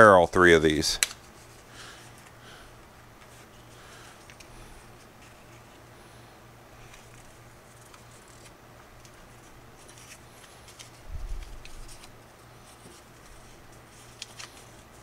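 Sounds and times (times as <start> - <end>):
low steady hum: 0.0 - 15.0
paper sheets rustling: 6.8 - 15.0.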